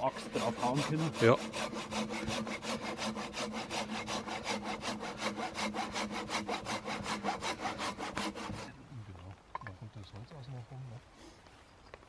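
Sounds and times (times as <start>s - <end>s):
hand saw cutting a log: 0.0s - 8.8s.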